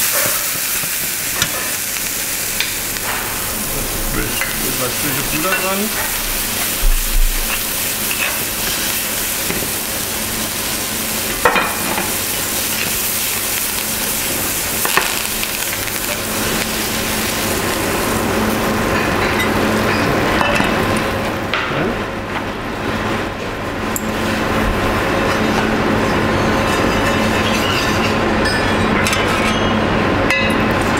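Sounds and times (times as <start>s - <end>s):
mushrooms sizzling in a pan: 0.0s - 20.9s.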